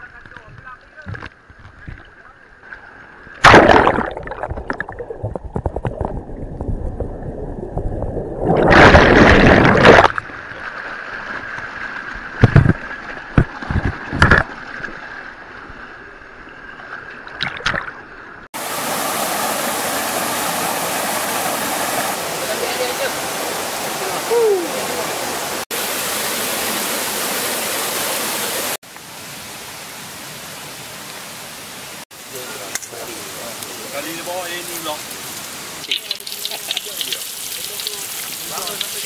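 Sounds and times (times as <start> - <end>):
river water splashing: 3.4 - 5.1, 8.4 - 15.6, 18.6 - 28.8, 33.0 - 39.0
stream flowing over rocks: 18.6 - 39.0.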